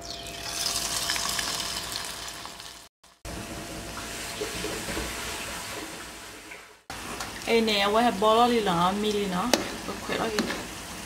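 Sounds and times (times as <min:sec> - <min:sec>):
fritters sizzling in hot oil: 0:00.1 - 0:03.2.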